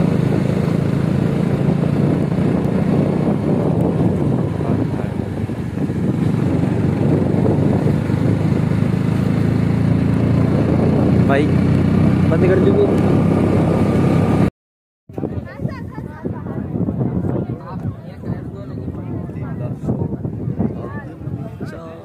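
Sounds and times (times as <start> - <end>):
motorcycle engine running: 0.0 - 14.5
road noise: 0.0 - 14.5.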